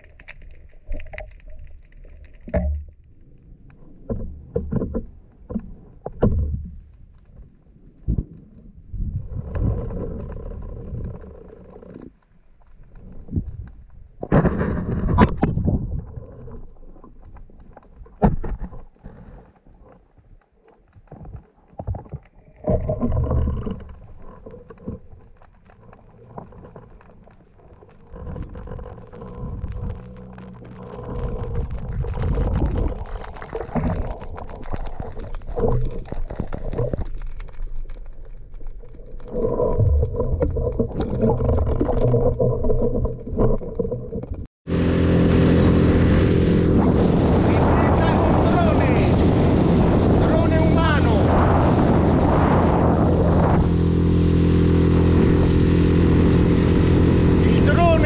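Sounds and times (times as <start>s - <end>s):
underwater clicks and knocks: 0.0s - 44.5s
underwater rumble of moving water: 0.0s - 58.0s.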